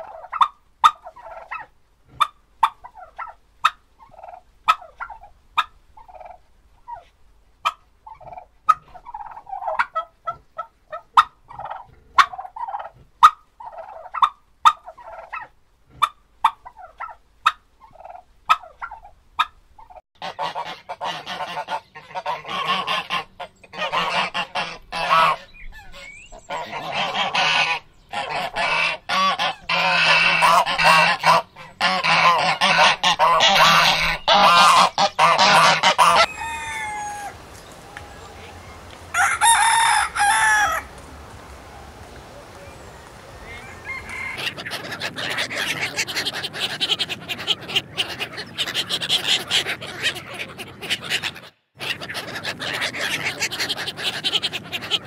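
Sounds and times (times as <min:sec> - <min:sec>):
turkeys gobbling: 0:00.0 - 0:55.0
geese honking: 0:20.2 - 0:55.0
sharp clicking calls: 0:34.2 - 0:47.1.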